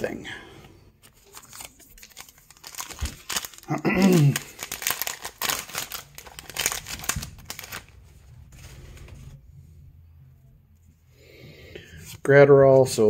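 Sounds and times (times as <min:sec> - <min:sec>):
plastic wrapper crinkling and tearing: 0:01.0 - 0:08.0.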